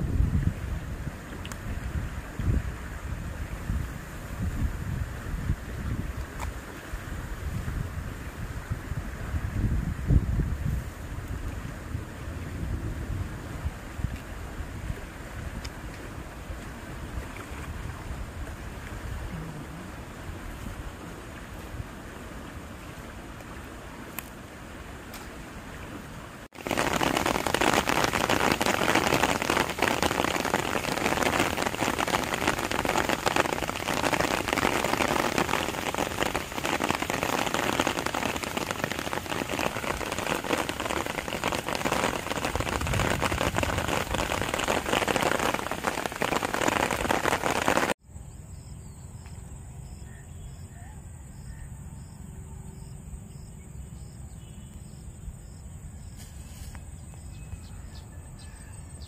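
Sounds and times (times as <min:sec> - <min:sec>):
steady rain falling: 0:00.0 - 0:48.0
faint insect chirping: 0:48.0 - 0:59.0.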